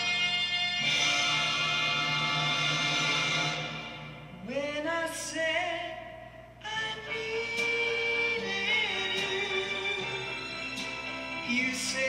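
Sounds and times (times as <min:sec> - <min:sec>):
music from portable speaker: 0:00.0 - 0:04.5, 0:06.4 - 0:12.0.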